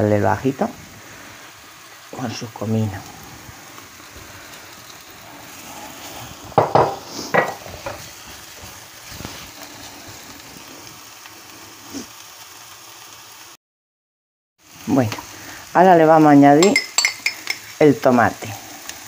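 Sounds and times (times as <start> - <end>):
onion sizzling in a pan: 0.0 - 13.6, 14.6 - 19.0
spatula stirring: 16.6 - 17.8.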